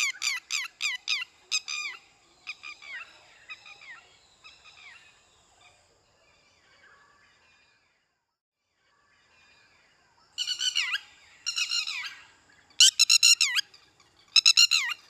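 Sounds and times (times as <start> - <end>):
shrill animal calls: 10.4 - 15.0.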